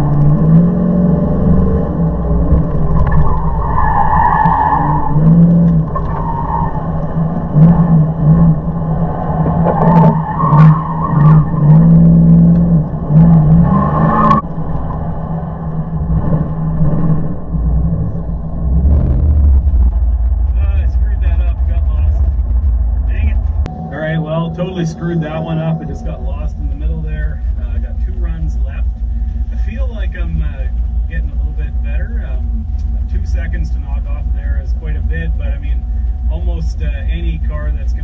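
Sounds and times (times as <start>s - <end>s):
car engine revving: 0.0s - 38.0s
tire squeal: 1.4s - 23.2s.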